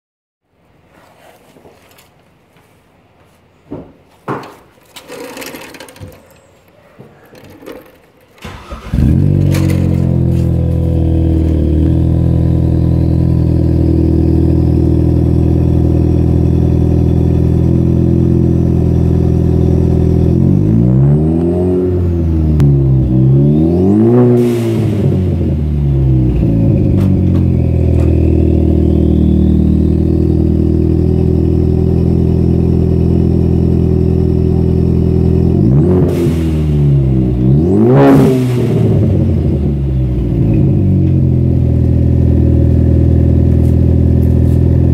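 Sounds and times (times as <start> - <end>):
faint knocks and rustles: 0.9 - 8.4
car engine starting and idling: 7.4 - 44.9
engine revving: 8.4 - 44.9.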